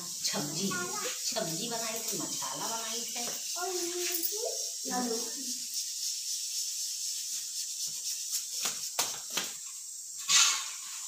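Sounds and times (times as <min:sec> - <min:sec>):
insects chirring: 0:00.0 - 0:11.0
rustle: 0:00.7 - 0:11.0.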